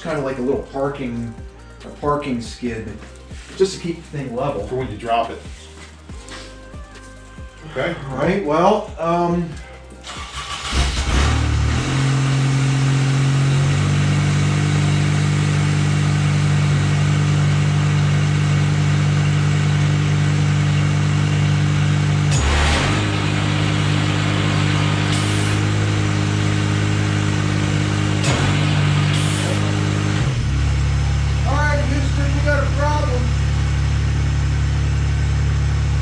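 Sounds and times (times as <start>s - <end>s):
tractor engine running: 9.9s - 36.0s.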